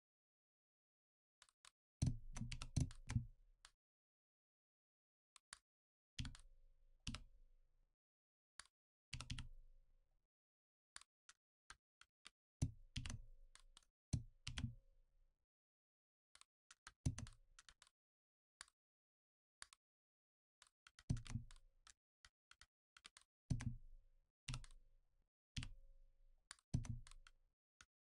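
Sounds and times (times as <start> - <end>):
keyboard and mouse clicks: 26.5 - 27.2.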